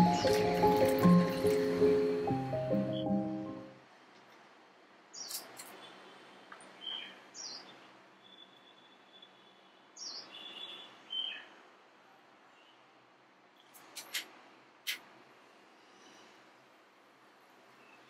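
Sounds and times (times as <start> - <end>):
small birds chirping: 5.1 - 5.9, 6.7 - 9.3, 10.0 - 11.6.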